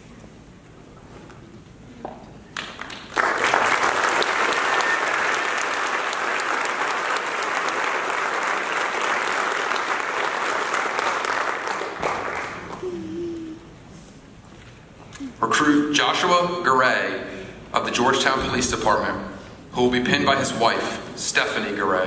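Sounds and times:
audience applauding: 2.5 - 12.9.

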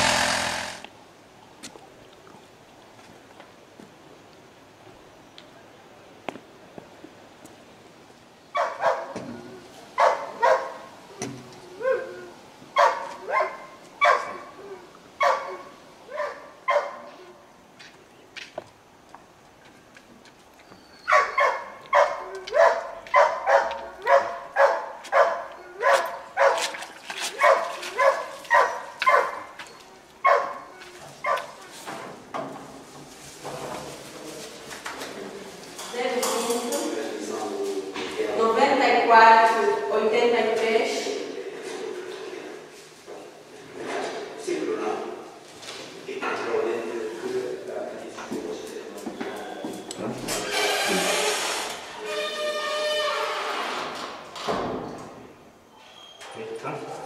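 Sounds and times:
dog barking: 8.5 - 9.2, 10.0 - 10.9, 12.8 - 14.6, 15.2 - 17.2, 21.1 - 26.7, 27.4 - 29.6, 30.2 - 31.6.

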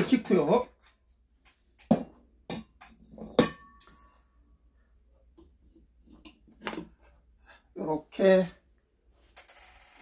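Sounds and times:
metallic ring: 3.4 - 4.4.

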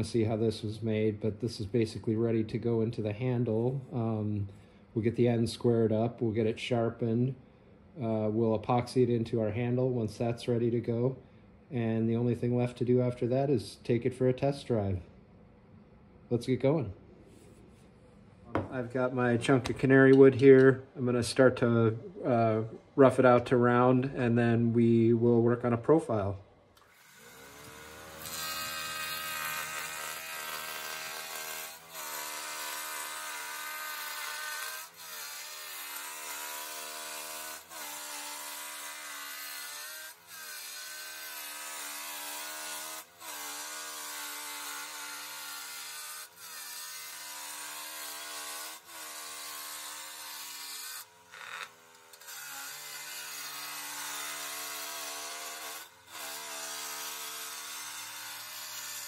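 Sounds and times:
gouge shaving wood on lathe: 26.9 - 51.6, 52.2 - 59.0.

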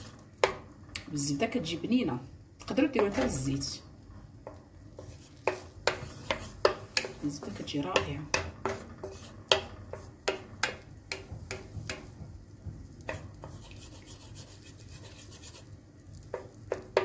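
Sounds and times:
wooden spoon scraping a pan: 4.4 - 12.4, 13.0 - 17.0.

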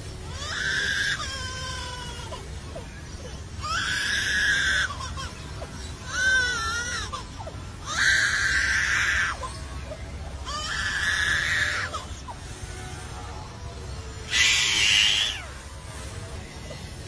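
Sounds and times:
bird mimicking crying baby: 0.3 - 2.4, 3.6 - 9.6.

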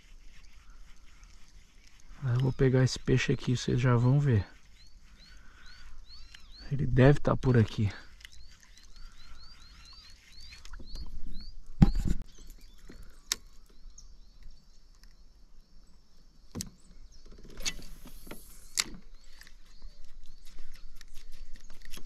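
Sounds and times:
small animal chirping: 8.1 - 12.0
fishing line hissing out: 17.6 - 19.0.

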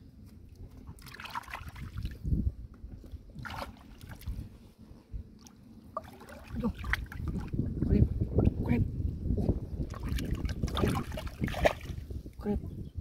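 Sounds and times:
hands splashing in water: 0.9 - 2.2, 3.4 - 4.4, 9.9 - 12.0
low rumble: 1.6 - 13.0.

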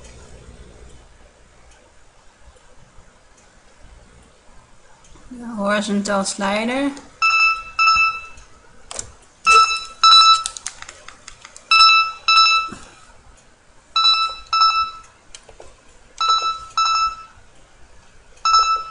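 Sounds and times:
telephone ringtone beeps: 7.2 - 8.4, 9.5 - 10.5, 11.7 - 12.8, 14.0 - 15.0, 16.2 - 17.4, 18.4 - 18.9.

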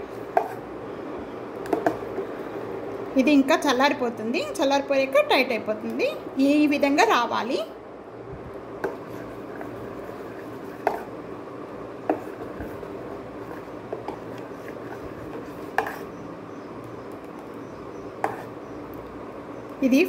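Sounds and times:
spoon stirring thick batter: 0.0 - 0.7, 1.6 - 2.4, 8.8 - 16.2, 16.8 - 19.8.

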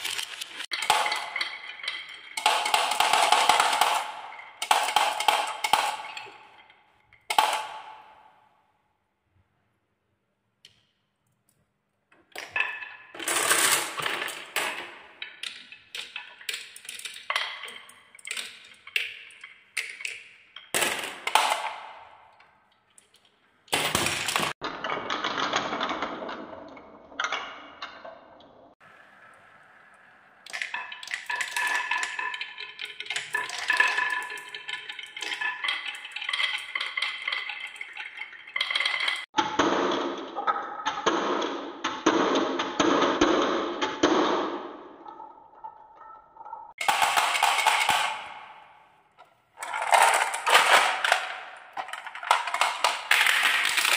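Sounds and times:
balls clattering down wooden tracks: 0.0 - 8.6, 12.1 - 28.8, 30.4 - 53.9
toy car rolling down wooden slope: 12.4 - 19.0, 49.6 - 53.9.

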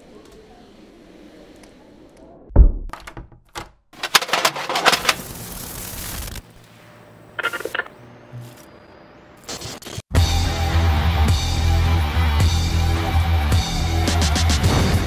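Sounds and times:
heavy thunk: 2.6 - 3.4
videotape static with crackle: 4.6 - 6.6.

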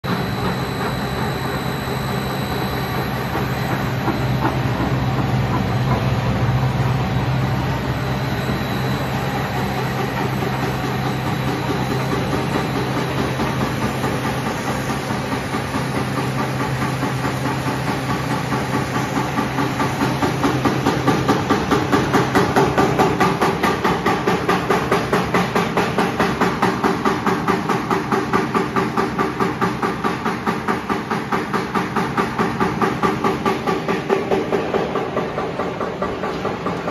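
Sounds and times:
machine hum: 0.0 - 28.6.

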